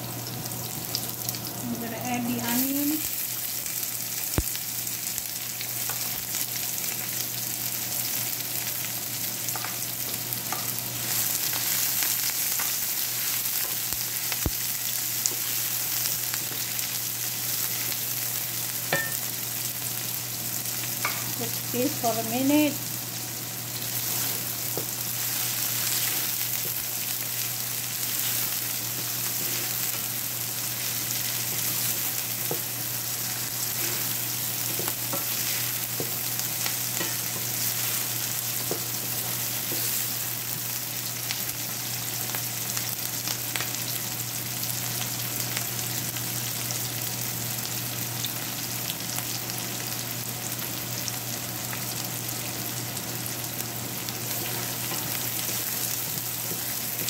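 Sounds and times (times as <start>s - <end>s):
onions sizzling in oil: 0.0s - 57.0s.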